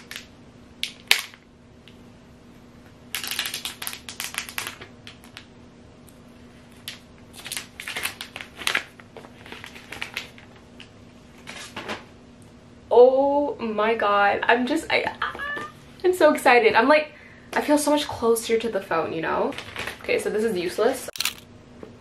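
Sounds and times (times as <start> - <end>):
plastic wrap crinkling: 3.1 - 5.5, 6.6 - 11.8, 19.4 - 20.1.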